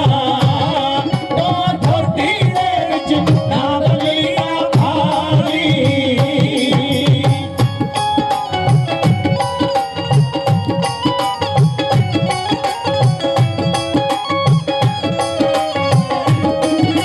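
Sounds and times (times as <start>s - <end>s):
man singing through a pa: 0.0s - 7.9s
dhol drum beats: 0.0s - 17.0s
instrumental accompaniment: 0.0s - 17.0s.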